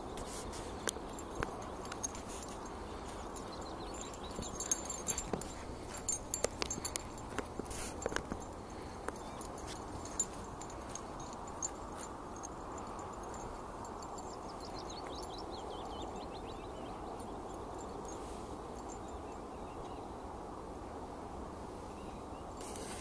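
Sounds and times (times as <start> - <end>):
outdoor background noise: 0.0 - 23.0
bird chirping: 0.8 - 7.4, 12.8 - 18.2.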